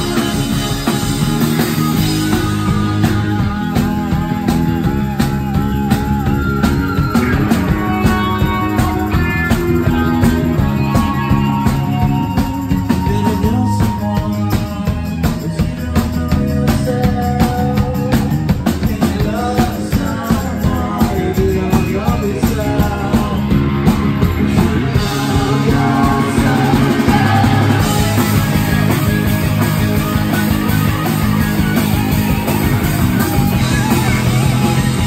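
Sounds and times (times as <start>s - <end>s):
rock band playing live: 0.0s - 35.0s
man singing: 12.2s - 29.0s.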